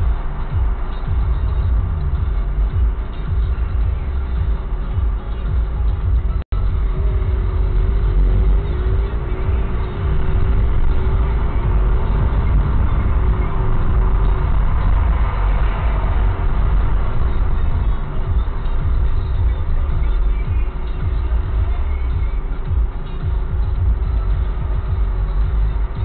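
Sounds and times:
car engine and road rumble: 0:00.0 - 0:26.0.

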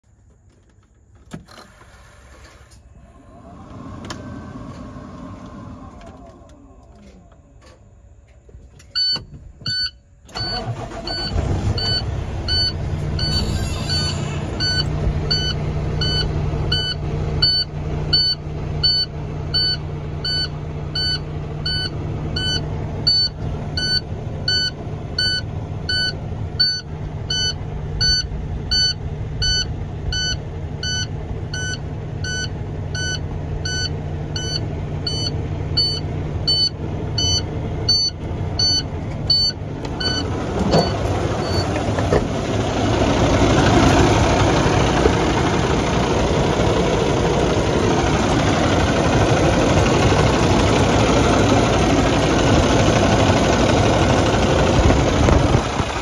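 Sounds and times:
diesel engine starting and idling: 0:00.4 - 0:56.0
dashboard warning beep: 0:08.9 - 0:42.2.

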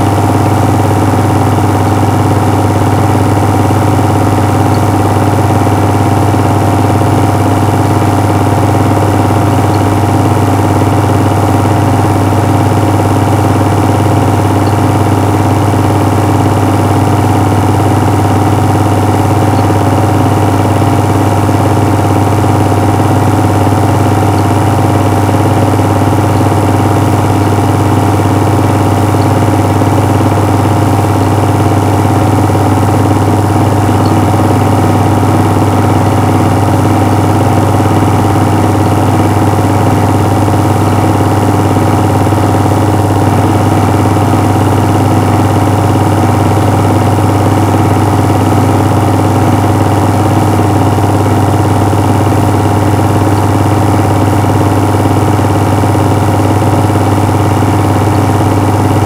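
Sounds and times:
loud buzzing machine hum: 0:00.0 - 0:59.0.

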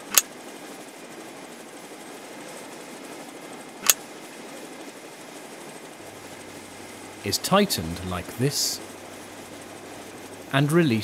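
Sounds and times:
low background hiss: 0:04.8 - 0:11.0.

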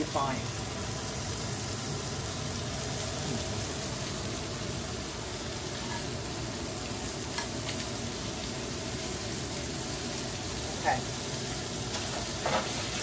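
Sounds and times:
shrimp sizzling in oil: 0:00.0 - 0:13.0
metal tongs clicking on pan: 0:07.3 - 0:07.9.

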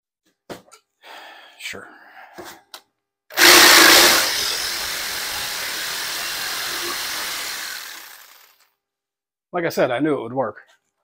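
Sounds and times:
jigsaw cutting wood: 0:03.3 - 0:08.7.

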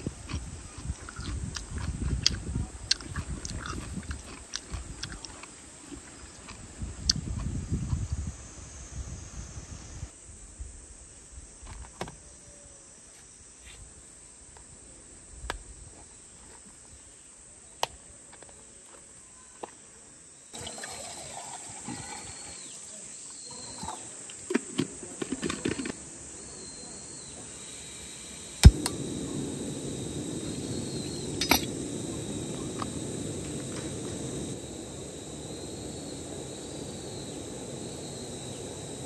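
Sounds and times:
camp cooking gear clicks and taps: 0:23.9 - 0:26.0, 0:31.4 - 0:31.8
faint high chirping: 0:26.3 - 0:39.0
gas canister click onto stove: 0:28.6 - 0:29.0, 0:31.4 - 0:31.8.

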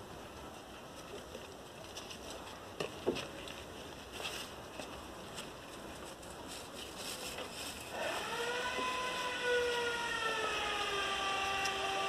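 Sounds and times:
faint crackling patter: 0:00.0 - 0:07.9.

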